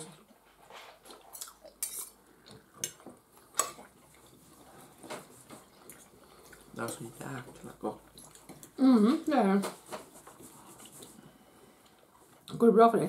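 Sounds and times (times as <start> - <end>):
cutlery clinking on plates: 1.8 - 2.2.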